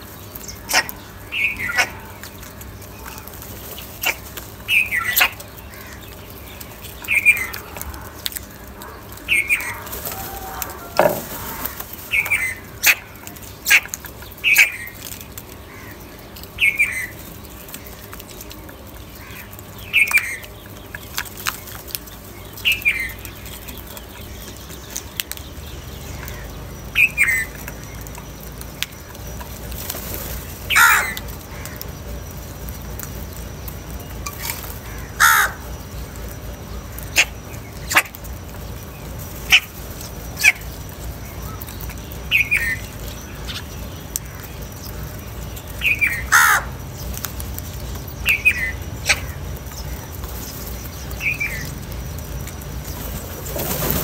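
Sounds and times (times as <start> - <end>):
crows cawing: 5.1 - 6.1, 7.4 - 15.0, 15.6 - 16.1, 19.2 - 19.5, 30.7 - 31.9, 34.4 - 35.8, 46.0 - 46.8.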